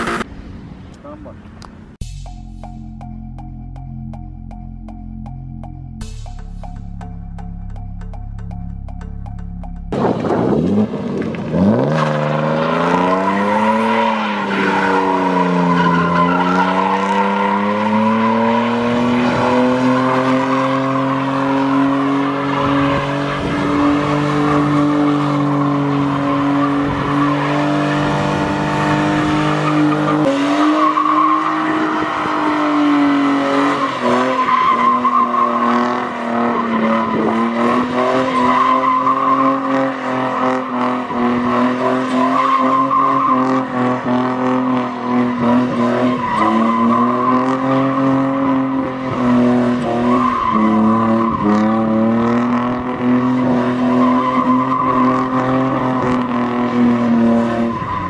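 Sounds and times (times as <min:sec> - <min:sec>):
car engine revving high: 0:06.0 - 0:58.0
tyres squealing on tarmac: 0:11.9 - 0:23.1, 0:29.5 - 0:43.9, 0:49.9 - 0:51.8, 0:53.8 - 0:56.4.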